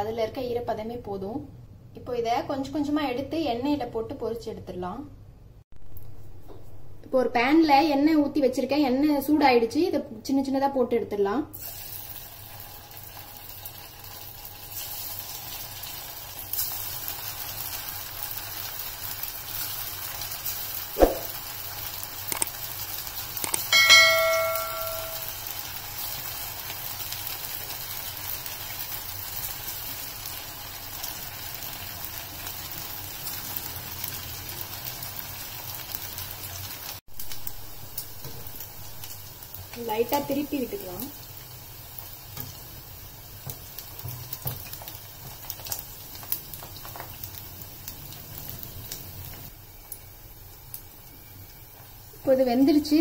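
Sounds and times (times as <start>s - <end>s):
batter sizzling in hot oil: 11.5s - 53.0s
sharp knock: 21.0s - 21.4s
ringing metallic clink: 23.7s - 25.3s.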